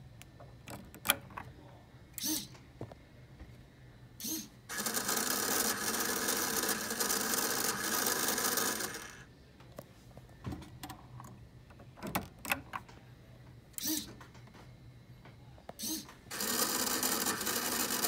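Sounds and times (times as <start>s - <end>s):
small electric motor whirring: 4.2s - 9.3s, 15.8s - 18.0s.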